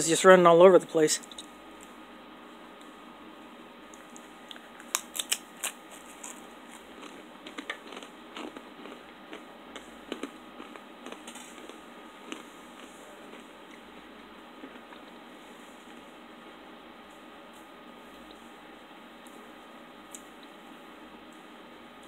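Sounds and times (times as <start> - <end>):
chewing crackles: 3.9 - 15.2
cracker crunching: 3.9 - 15.2.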